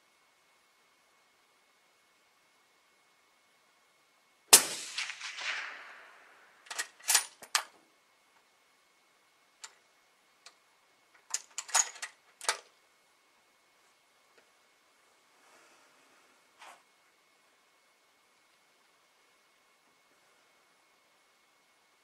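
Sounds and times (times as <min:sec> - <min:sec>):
suppressed rifle shot with echo: 0:04.5 - 0:06.6.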